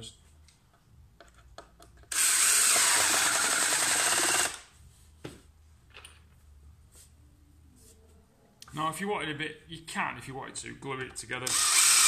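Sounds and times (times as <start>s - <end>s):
cordless drill driving screw: 2.1s - 4.6s, 11.5s - 12.0s.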